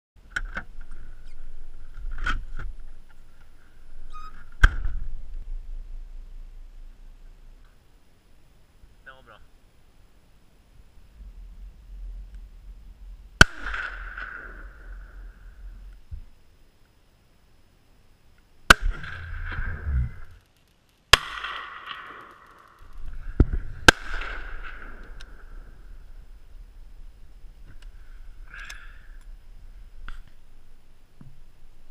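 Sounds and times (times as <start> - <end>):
rifle shots with echo: 13.4 - 15.5, 18.7 - 19.8, 21.1 - 22.8, 23.8 - 25.6.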